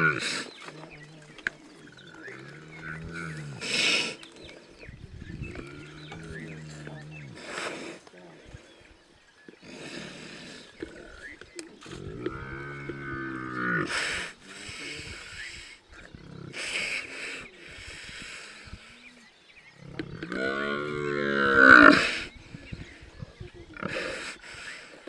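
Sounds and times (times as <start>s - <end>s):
buffalo bellowing: 1.8s - 4.0s, 19.9s - 22.3s.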